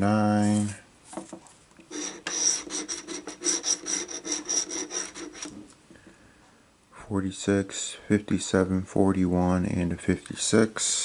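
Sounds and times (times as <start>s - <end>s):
lottery ticket being scraped: 1.9s - 5.6s.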